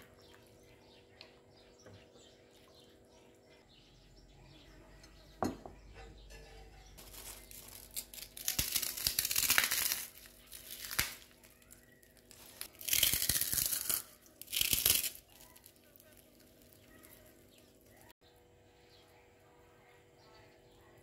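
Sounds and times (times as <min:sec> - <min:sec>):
crinkling and tearing: 0:07.0 - 0:18.1.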